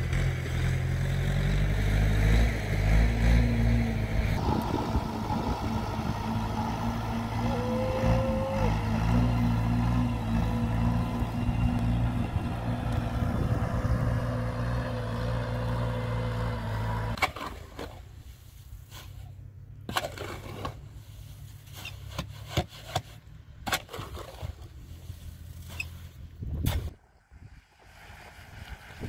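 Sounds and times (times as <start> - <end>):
engine running: 0.0 - 17.2
sharp knocks and scrapes: 18.8 - 27.0.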